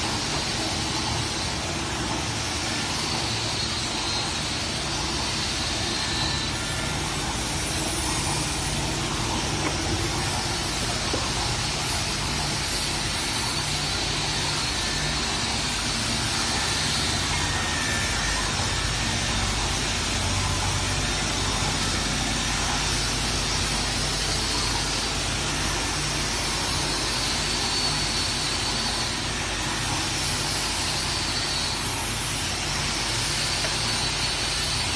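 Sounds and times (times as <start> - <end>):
machine motors humming and hissing: 0.0 - 34.9.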